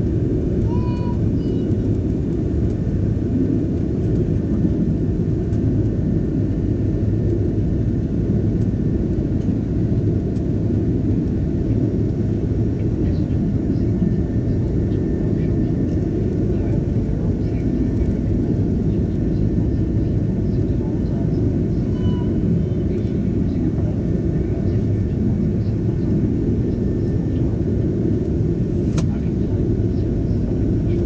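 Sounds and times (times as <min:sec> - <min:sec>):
aircraft cabin engine rumble: 0:00.0 - 0:31.0
brief faint tone: 0:21.9 - 0:22.4.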